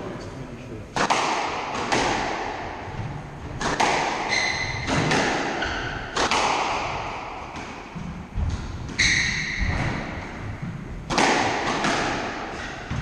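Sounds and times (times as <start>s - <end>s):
squash ball hits ringing: 3.6s - 13.0s
shoes squeaking on wooden floor: 4.2s - 6.0s, 7.9s - 10.7s.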